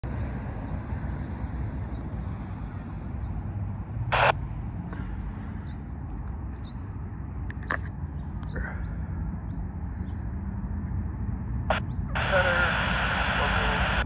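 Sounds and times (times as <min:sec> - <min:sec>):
low outdoor rumble: 0:00.0 - 0:14.0
loud noisy burst: 0:04.1 - 0:04.3, 0:12.2 - 0:14.0.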